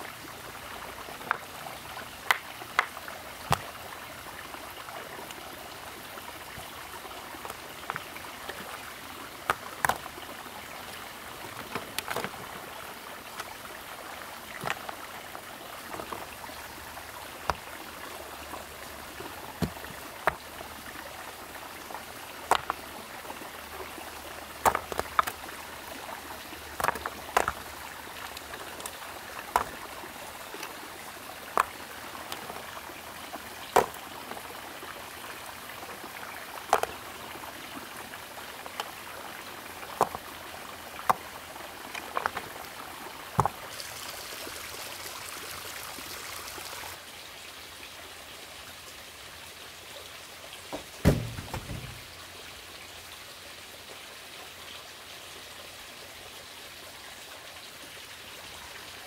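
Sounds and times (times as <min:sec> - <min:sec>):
iron ore lumps knocking: 0:50.7 - 0:52.1.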